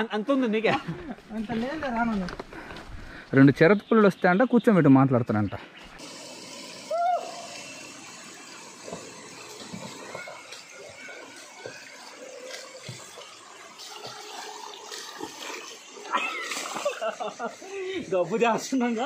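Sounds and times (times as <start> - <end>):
stream water running over rocks: 5.9 - 19.0
splashing of wading: 8.8 - 18.5.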